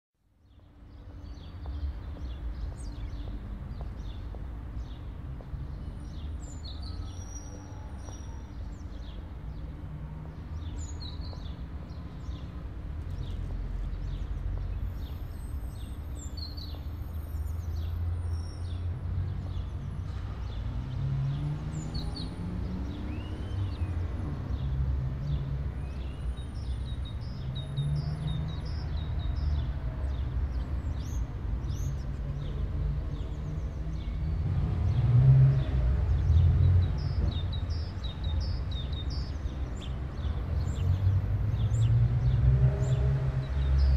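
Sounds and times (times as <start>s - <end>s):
distant traffic hum: 0.2s - 43.9s
small birds chirping: 0.4s - 35.0s.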